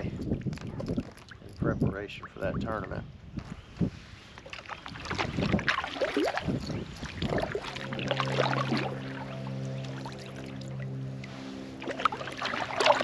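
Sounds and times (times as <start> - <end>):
paddle strokes splashing water: 4.4 - 13.0
background music: 7.8 - 13.0.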